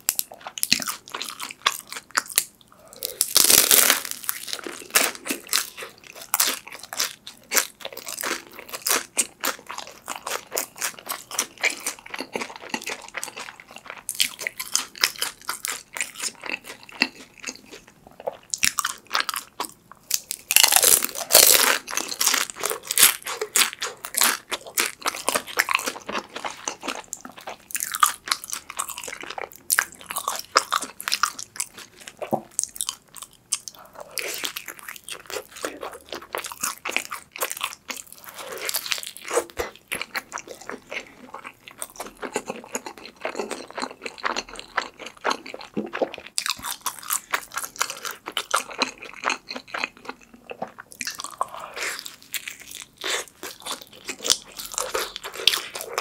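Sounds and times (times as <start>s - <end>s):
crunching and chewing pizza: 0.0s - 56.0s.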